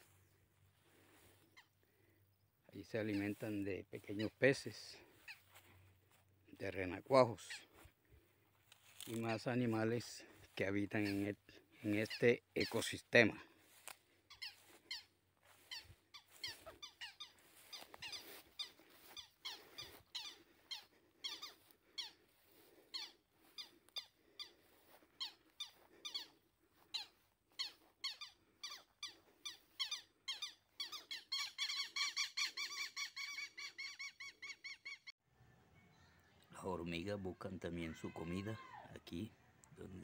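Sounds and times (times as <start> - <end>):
high-pitched animal chirping: 4.0 - 4.5, 5.2 - 5.6, 14.3 - 22.3, 22.9 - 35.1.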